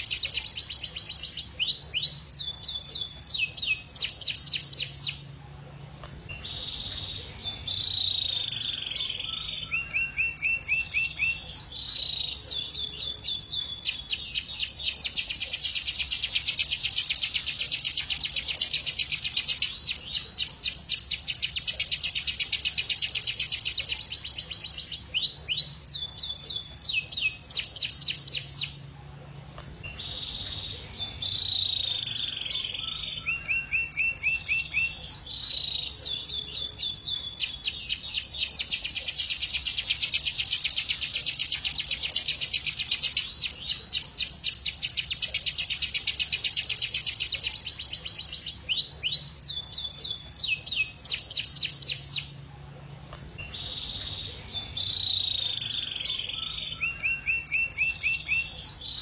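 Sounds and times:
canary singing: 0.0s - 59.0s.

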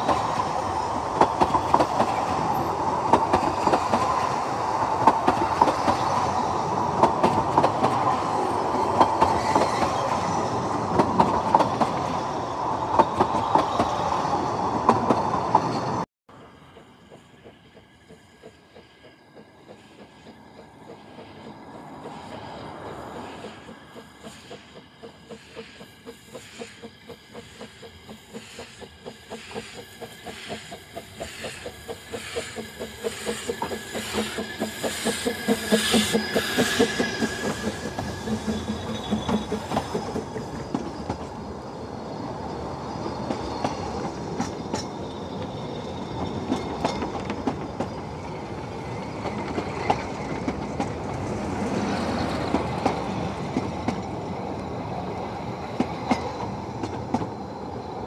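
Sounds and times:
steam locomotive beats: 0.0s - 15.7s, 16.3s - 58.0s.

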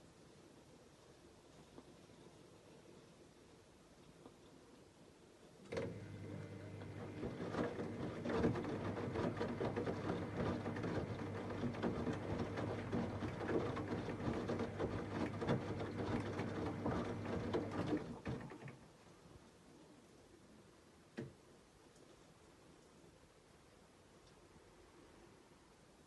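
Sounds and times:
washing machine motor hum: 5.7s - 18.8s.

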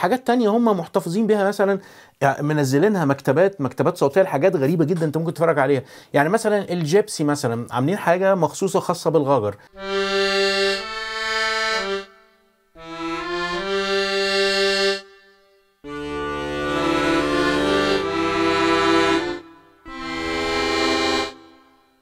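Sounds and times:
accordion playing held chords: 9.7s - 22.0s.

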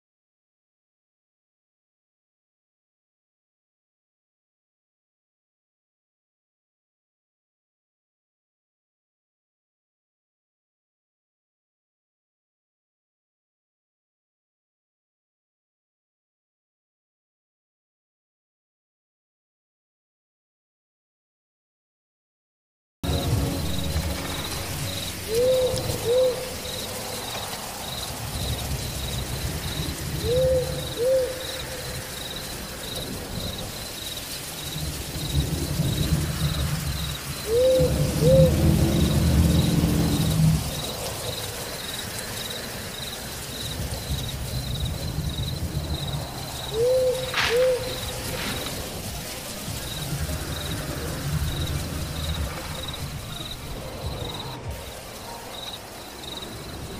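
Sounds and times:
low rumble: 23.0s - 30.8s
cricket chirping: 23.1s - 56.9s
owl hooting: 24.4s - 27.5s, 30.2s - 32.0s, 37.4s - 38.7s, 46.7s - 48.8s
sharp crack: 47.2s - 49.7s.

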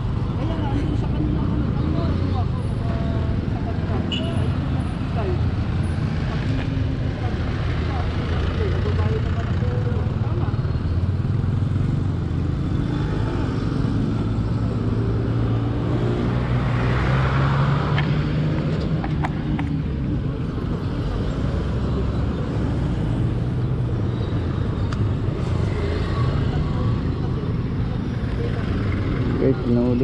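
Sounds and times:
traffic noise: 0.0s - 30.0s.

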